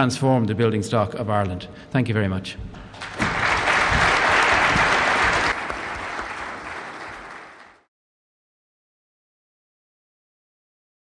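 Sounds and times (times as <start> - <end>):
audience applauding: 2.9 - 7.9.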